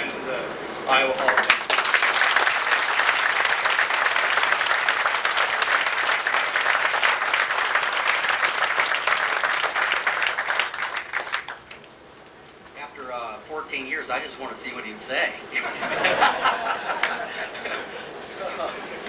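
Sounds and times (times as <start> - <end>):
audience applauding: 0.9 - 11.9, 16.1 - 17.8.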